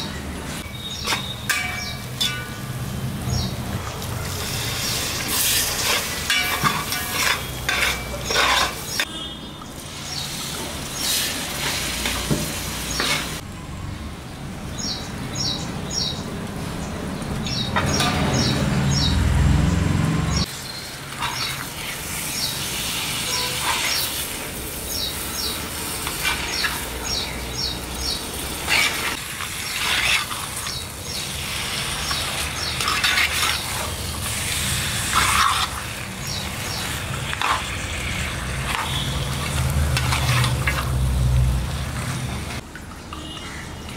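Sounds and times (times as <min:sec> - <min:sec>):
onions sizzling: 0:00.5 - 0:09.1, 0:09.7 - 0:13.4, 0:20.4 - 0:42.6
metal ladle stirring and scraping pot: 0:00.9 - 0:02.6, 0:04.4 - 0:09.1, 0:21.2 - 0:24.3, 0:28.6 - 0:30.8, 0:31.4 - 0:41.1.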